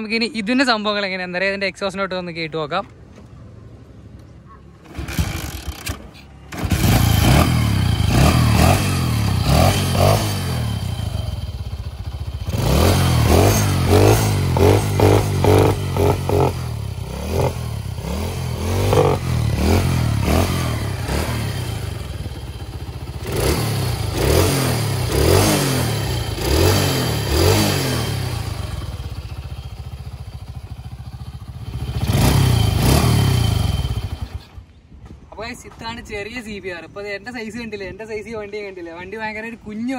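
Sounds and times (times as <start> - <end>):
mini bike engine throttle blips: 4.8 - 34.6.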